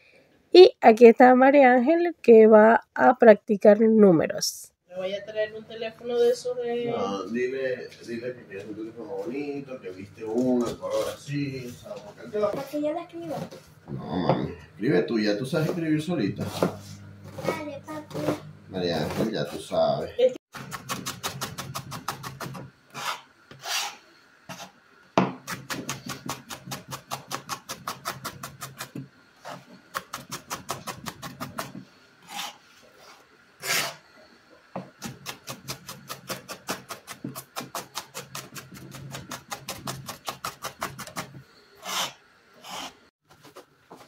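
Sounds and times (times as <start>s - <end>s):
knife chopping on a cutting board: 16.4s - 18.4s, 20.6s - 23.7s, 24.5s - 29.0s, 34.9s - 41.3s.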